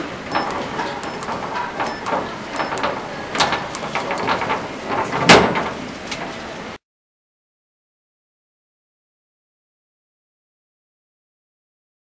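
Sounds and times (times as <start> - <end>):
lock buttons clicking: 0.3 - 4.3.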